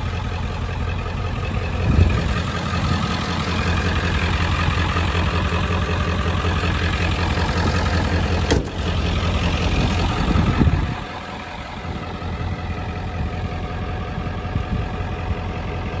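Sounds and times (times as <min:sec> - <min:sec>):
diesel truck engine idling: 0:00.0 - 0:16.0
truck door shutting: 0:07.6 - 0:09.0.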